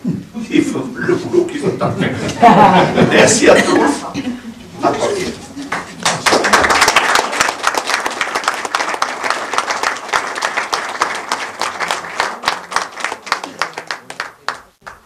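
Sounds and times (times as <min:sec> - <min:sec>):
people applauding: 0:05.6 - 0:15.0.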